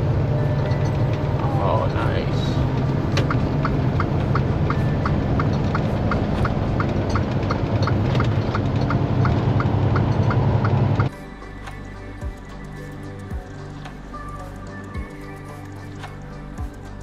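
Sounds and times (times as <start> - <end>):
diesel engine droning: 0.0 - 17.0
turn signal ticking: 0.4 - 11.1.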